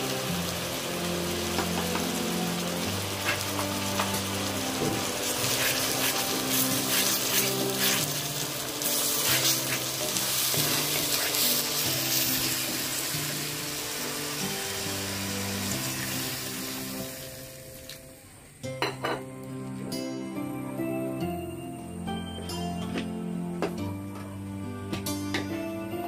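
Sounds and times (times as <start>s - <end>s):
onions sizzling in hot oil: 0.0s - 18.4s
wooden spatula scraping pan: 5.5s - 8.2s.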